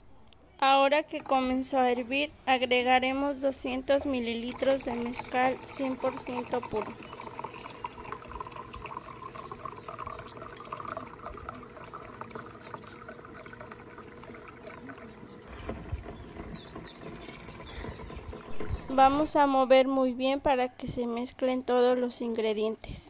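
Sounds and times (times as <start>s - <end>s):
liquid trickling into a jug: 3.6s - 19.5s.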